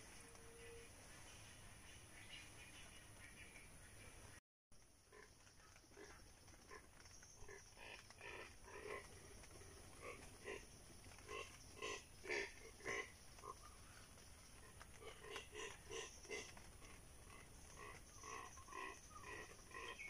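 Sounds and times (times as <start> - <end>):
animal grunting calls: 5.9 - 13.8, 14.6 - 20.0.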